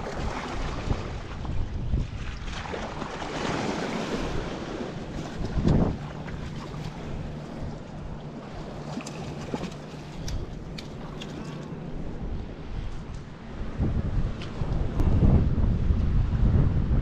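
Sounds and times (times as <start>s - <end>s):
waves slapping against rocks: 0.0s - 12.1s
wind buffeting the microphone: 0.0s - 17.0s.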